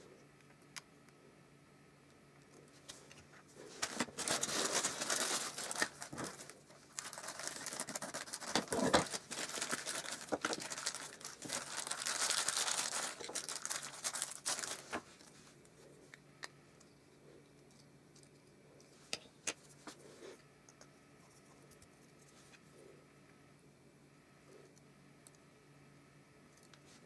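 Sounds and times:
tissue paper crinkling: 3.6 - 15.6.

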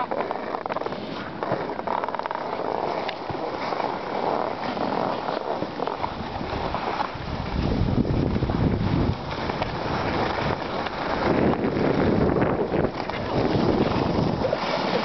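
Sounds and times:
edges scraping over snow: 0.0 - 15.0
wind buffeting microphone: 0.0 - 15.0.

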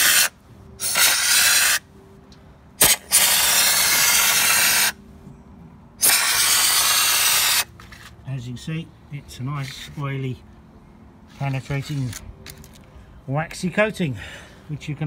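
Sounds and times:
spray gun hissing bursts: 0.0 - 1.8, 2.8 - 5.0, 6.0 - 7.7.

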